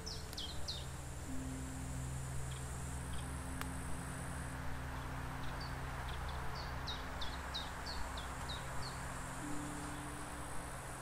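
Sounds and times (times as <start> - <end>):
high insect buzz: 0.0 - 11.0.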